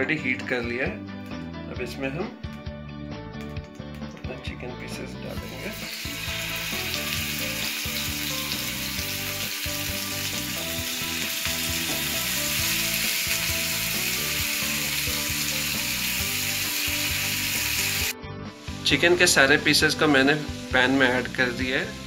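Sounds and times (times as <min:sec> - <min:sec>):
background music: 0:00.0 - 0:22.0
hot oil sizzling in a pan: 0:05.3 - 0:22.0.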